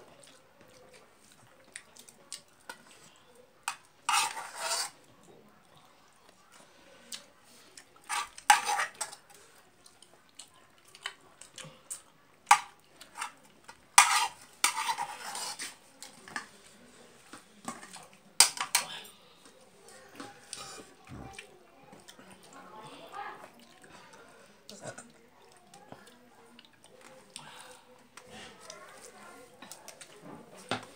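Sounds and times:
fingers mixing rice on metal plate: 3.7s - 5.0s, 11.0s - 16.5s.

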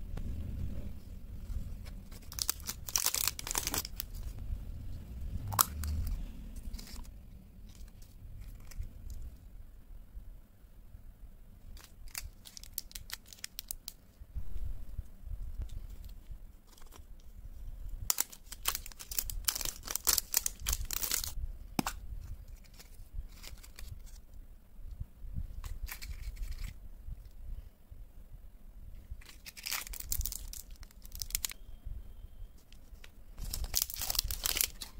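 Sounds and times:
foil wrapper crinkling and tearing: 1.5s - 4.4s, 11.8s - 14.0s, 18.1s - 21.4s, 22.5s - 24.2s, 25.6s - 26.8s, 29.2s - 31.6s, 32.7s - 34.9s
plastic packaging clicks and crinkles: 1.8s - 4.4s, 11.8s - 14.0s, 18.1s - 24.2s, 25.6s - 26.8s, 29.2s - 31.6s, 32.6s - 34.9s.

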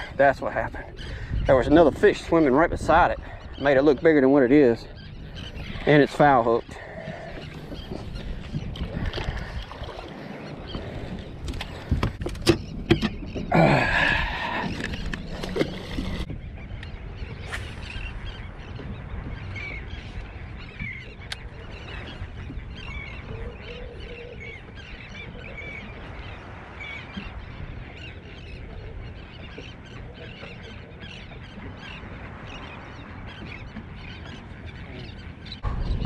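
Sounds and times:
birds calling: 0.0s - 36.0s
low rumble: 35.6s - 36.0s.

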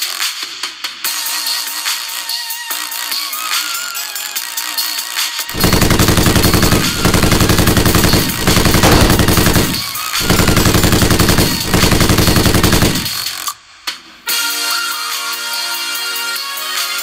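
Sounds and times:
automatic machine-gun fire: 5.5s - 13.5s.

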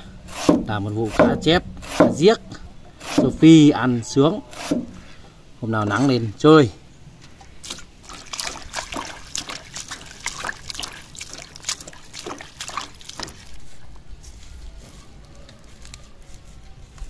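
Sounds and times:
hand splashing water in basin: 7.5s - 13.7s.

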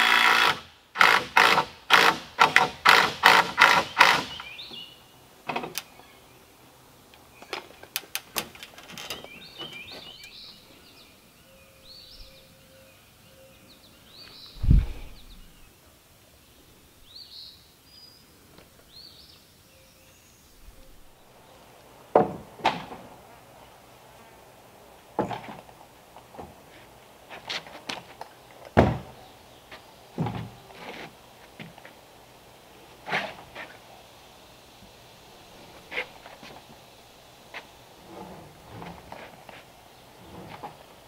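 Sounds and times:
songbirds chirping: 3.6s - 41.0s
heavy low thud: 14.6s - 15.5s
wooden logs knocking: 22.1s - 23.1s.

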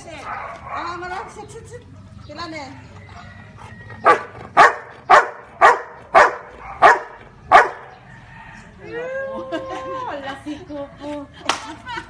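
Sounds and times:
dog barking: 0.2s - 1.4s, 4.0s - 8.0s.

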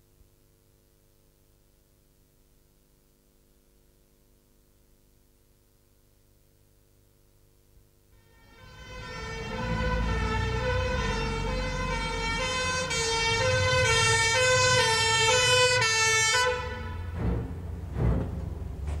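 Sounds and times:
ambulance two-tone siren: 8.2s - 17.2s.

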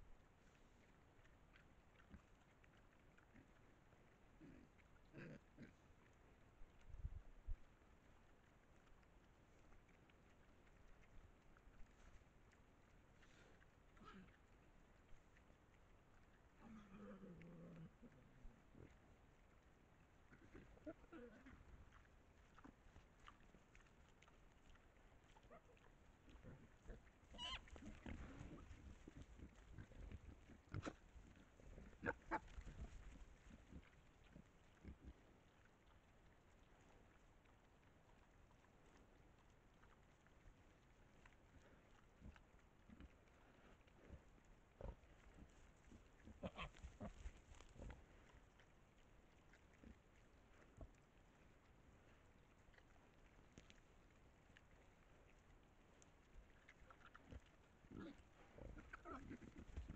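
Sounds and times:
hogs grunting and scuffling: 0.0s - 59.9s
wild hogs grunting: 3.2s - 6.2s, 13.2s - 14.6s, 20.2s - 35.6s, 43.0s - 48.6s, 56.8s - 59.9s
hog squeal: 27.3s - 27.9s.

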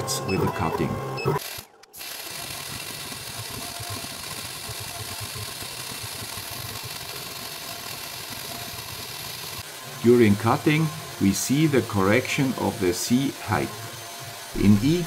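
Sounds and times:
milling spindle hissing and rumbling: 2.0s - 15.0s.

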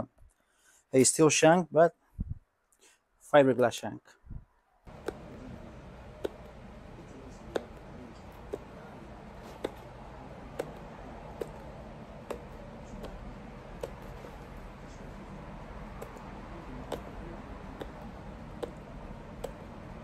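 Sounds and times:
low workshop hum: 4.1s - 20.0s.

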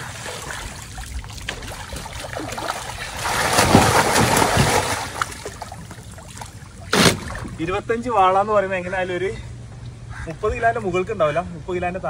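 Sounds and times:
fish splashing in water: 0.0s - 7.6s.

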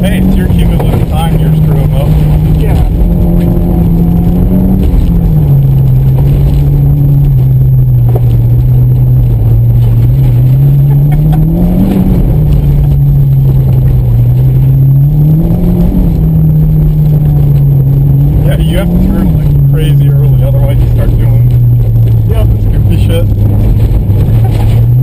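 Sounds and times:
car engine running hard: 0.0s - 25.0s.

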